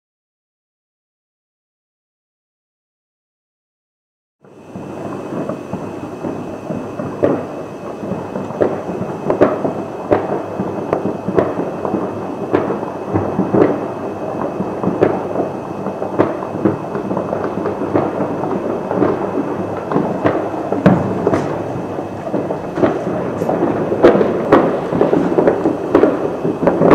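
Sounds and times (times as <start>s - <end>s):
distant fireworks rumble: 4.4s - 26.9s
firecracker cracks: 4.5s - 26.9s.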